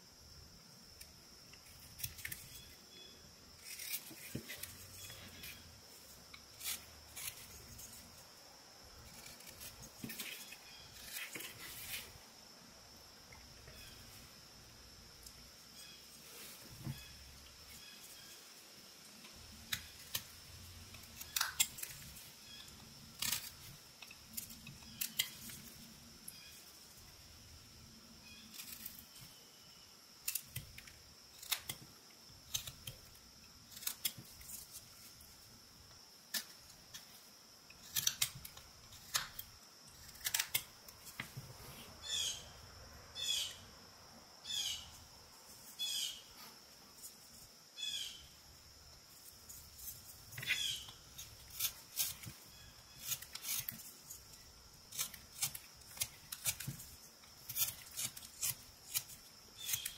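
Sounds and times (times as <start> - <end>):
knife whittling wood: 3.6 - 8.3, 19.2 - 26.6, 36.3 - 42.4, 49.4 - 59.9
wood chips snapping off: 19.7 - 25.6.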